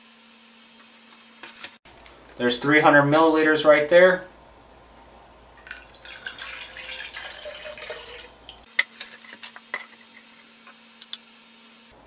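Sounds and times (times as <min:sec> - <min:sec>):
water pouring: 0:05.6 - 0:08.7.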